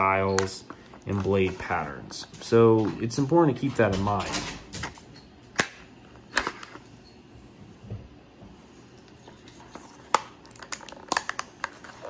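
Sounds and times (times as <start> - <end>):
plastic clicks and crackles: 9.7 - 12.0.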